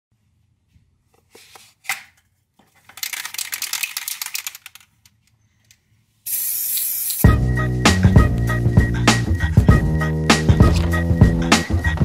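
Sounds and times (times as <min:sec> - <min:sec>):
spray can ball rattling: 0:02.8 - 0:05.1, 0:06.3 - 0:07.3
spray hiss: 0:06.3 - 0:07.3.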